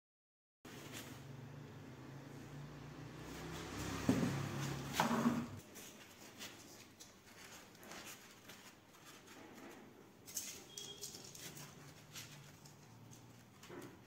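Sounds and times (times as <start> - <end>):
cardboard box scraping on floor: 3.4 - 5.9.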